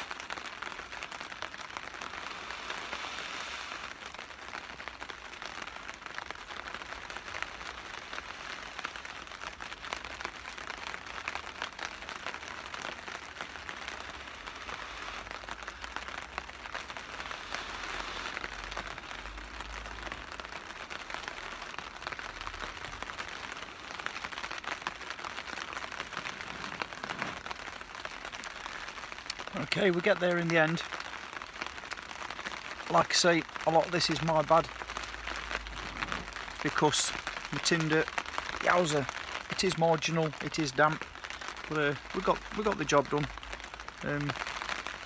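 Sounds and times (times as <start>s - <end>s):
rain pattering on a tarp: 0.0s - 45.0s
breath blowing on an ember: 1.9s - 4.2s, 13.7s - 19.5s.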